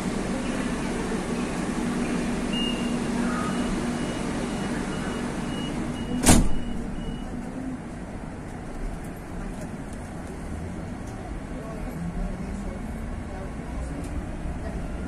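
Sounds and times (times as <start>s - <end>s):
train carriage hum: 0.0s - 15.0s
sliding doors thumping shut: 5.4s - 6.8s.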